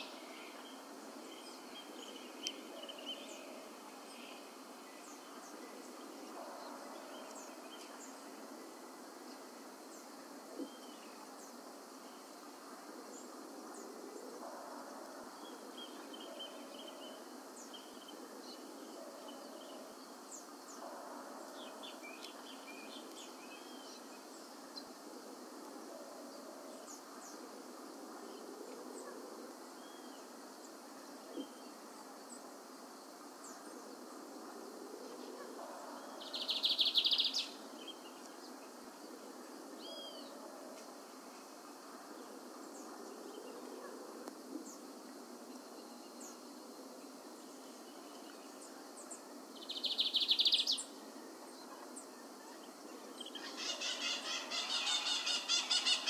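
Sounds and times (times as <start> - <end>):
bird singing softly: 47.4 - 56.0.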